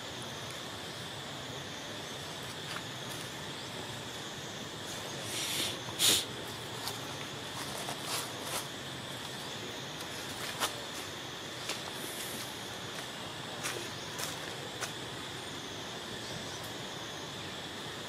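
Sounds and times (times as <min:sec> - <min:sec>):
high-pitched insect drone: 0:00.0 - 0:18.0
short sharp hiss: 0:05.2 - 0:06.4.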